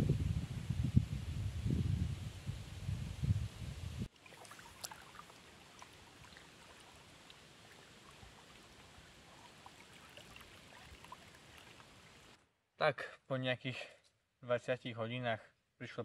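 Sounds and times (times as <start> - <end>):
small waves lapping on stony shore: 4.1 - 12.4.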